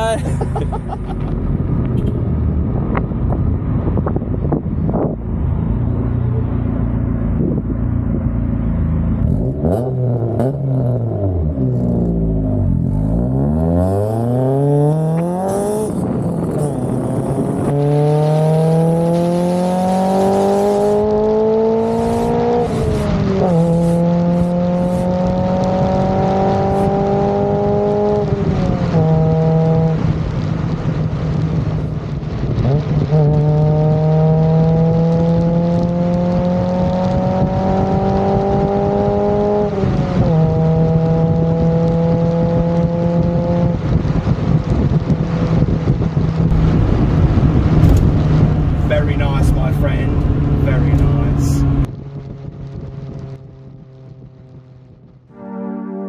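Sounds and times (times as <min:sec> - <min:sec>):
car engine accelerating: 0:00.0 - 0:56.0
rising and falling tones: 0:55.3 - 0:56.0.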